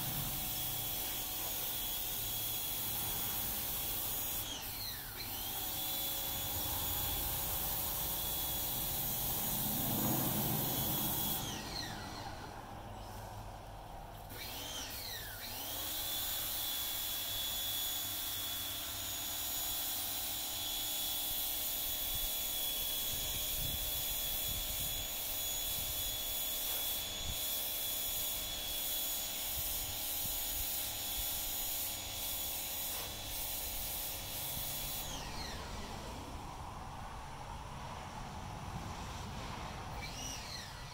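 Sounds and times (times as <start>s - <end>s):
low buzz: 0.0s - 17.2s
small electric motor whining: 0.0s - 36.2s, 39.9s - 40.9s.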